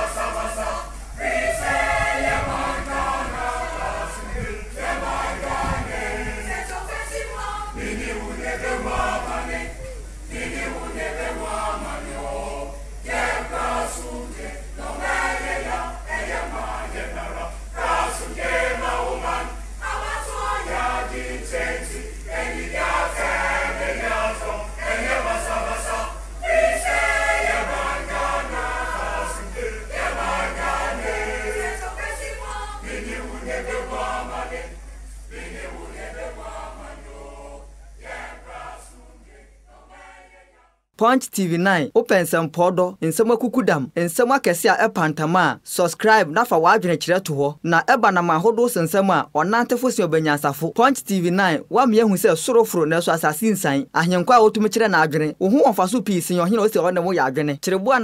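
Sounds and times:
choir singing in harmony: 0.0s - 40.9s.

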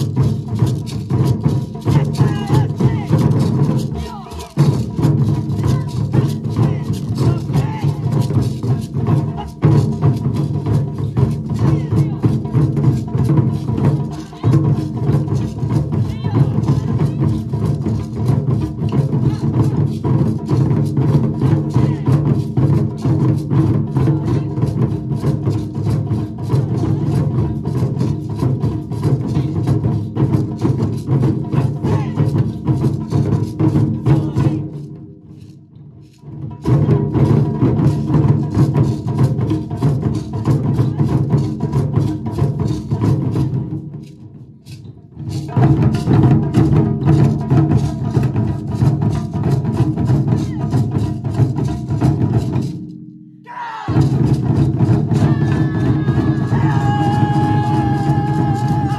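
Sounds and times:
ensemble drumming: 0.0s - 34.8s, 53.9s - 58.9s.

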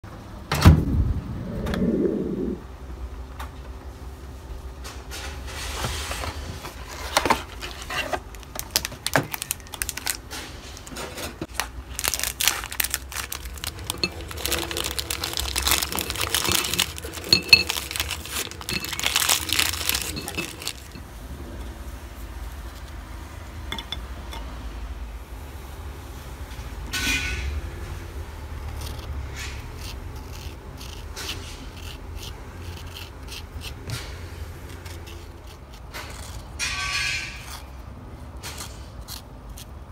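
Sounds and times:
steady low hum: 0.1s - 8.7s
plastic wrapper crinkling: 7.5s - 10.9s, 11.5s - 21.0s
cookies twisted apart: 7.5s - 21.0s
cream scraped over a glass bowl: 13.7s - 21.0s.

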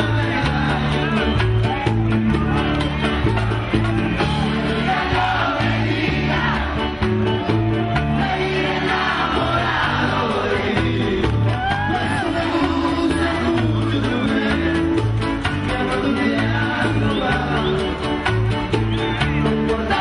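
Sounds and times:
person singing: 0.0s - 2.6s, 7.5s - 18.3s, 19.3s - 20.0s
bass notes: 0.0s - 20.0s
live latin band playing: 0.0s - 20.0s.

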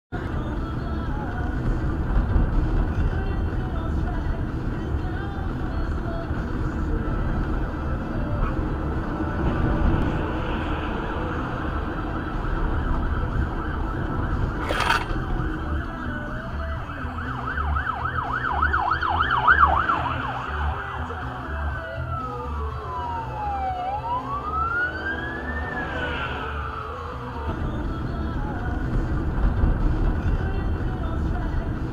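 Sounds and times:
police siren yelp and wail: 9.7s - 27.8s.

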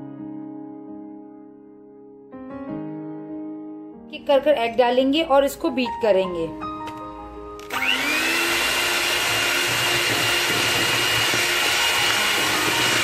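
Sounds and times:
electric hand mixer whine: 7.6s - 13.0s.

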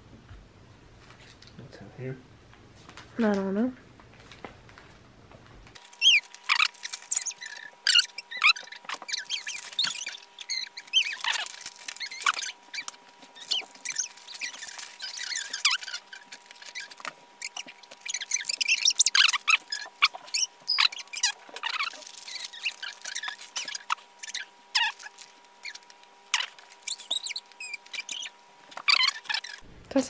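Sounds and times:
wrapping paper crinkling: 5.8s - 29.6s.

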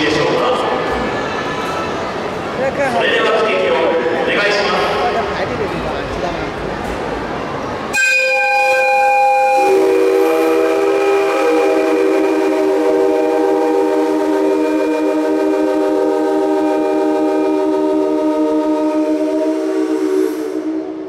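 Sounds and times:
train horn blast: 7.9s - 21.0s.

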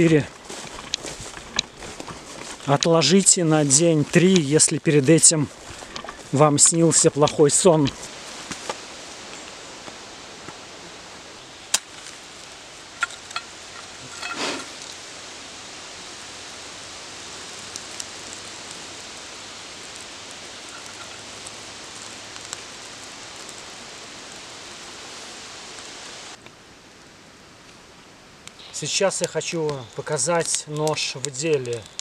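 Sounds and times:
steady hiss: 0.0s - 32.0s
wooden match struck: 11.7s - 15.0s, 19.9s - 23.6s.

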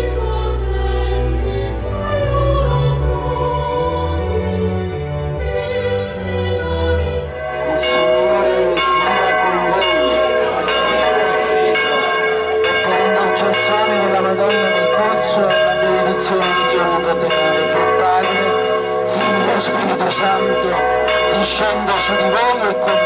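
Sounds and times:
church bells pealing: 0.0s - 23.0s.

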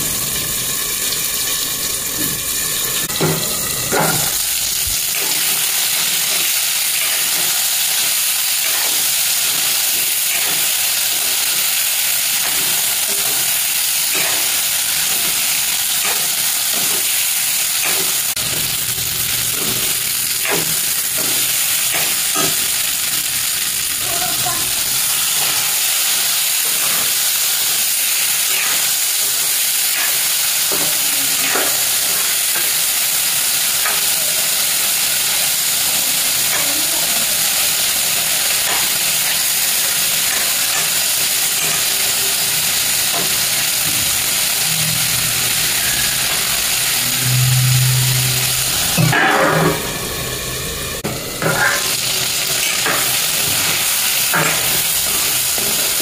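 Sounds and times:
food sizzling in hot oil: 0.0s - 56.0s
metal spatula scraping: 43.1s - 53.2s
short low hum: 44.0s - 51.5s.

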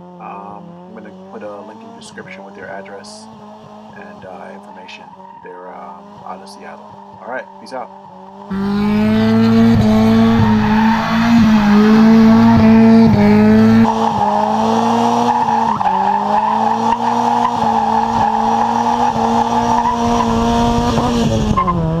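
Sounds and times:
car engine revving high: 0.0s - 22.0s
tyres squealing: 4.4s - 21.8s.

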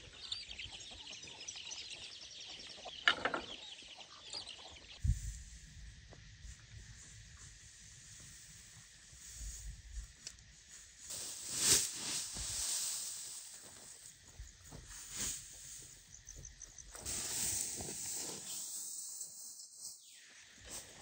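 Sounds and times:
grass rustling with pitchfork: 6.4s - 16.2s, 16.9s - 21.0s.

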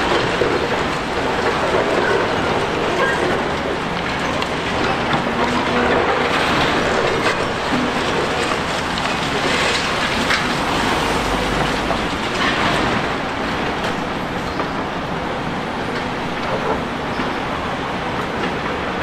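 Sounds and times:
clattering and crunching: 0.0s - 14.0s
excavator machine noise: 0.0s - 19.0s.

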